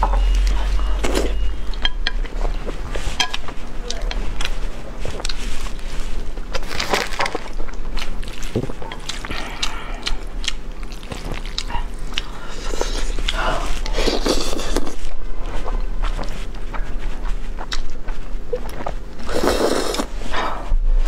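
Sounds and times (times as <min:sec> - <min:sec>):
chewing: 0:00.0 - 0:20.1
chopsticks scraping a plate: 0:01.2 - 0:04.6
slurping noodles: 0:19.2 - 0:20.2.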